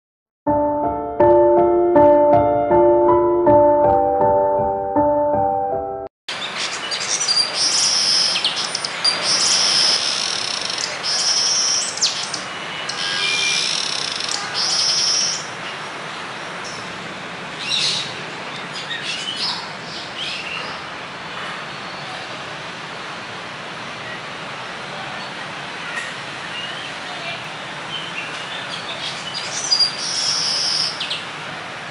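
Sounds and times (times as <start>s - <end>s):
starlings rasping calls: 6.5s - 15.5s, 29.0s - 31.2s.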